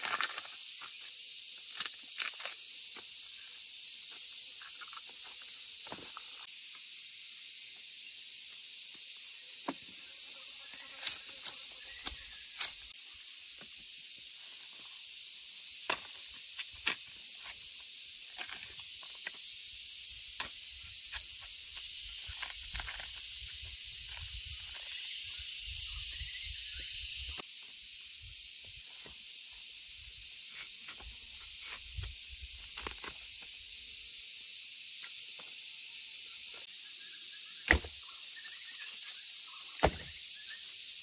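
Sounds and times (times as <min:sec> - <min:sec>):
high-pitched outdoor hiss: 0:00.0 - 0:41.0.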